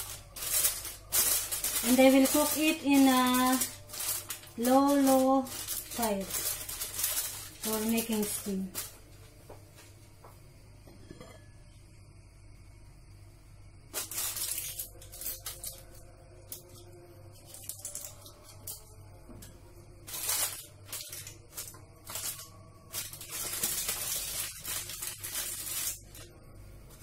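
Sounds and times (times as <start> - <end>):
aluminium foil crinkling: 0.0 - 9.0, 13.9 - 19.1, 20.0 - 27.0.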